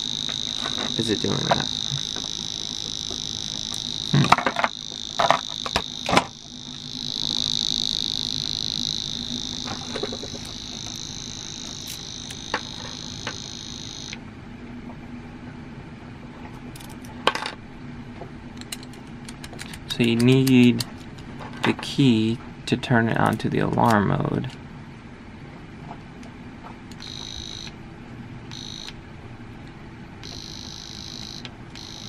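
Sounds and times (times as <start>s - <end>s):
high-pitched electronic buzzer: 0.0s - 14.2s, 27.0s - 27.8s, 28.5s - 29.0s, 30.2s - 32.0s.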